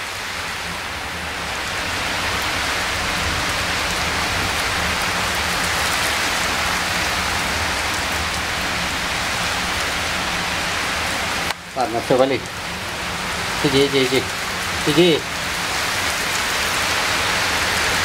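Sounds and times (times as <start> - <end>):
rain hissing: 0.0 - 18.0.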